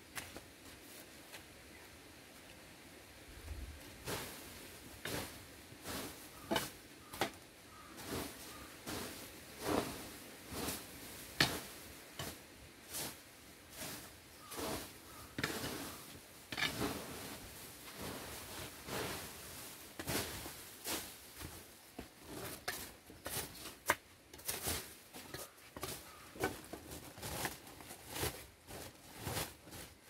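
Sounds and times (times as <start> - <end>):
plastic bags rustling: 16.7 - 30.0.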